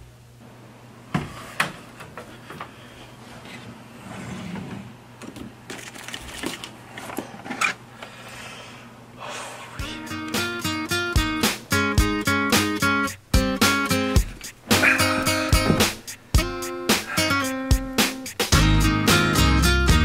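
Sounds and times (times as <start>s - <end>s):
plastic cd case handled: 5.7s - 7.8s.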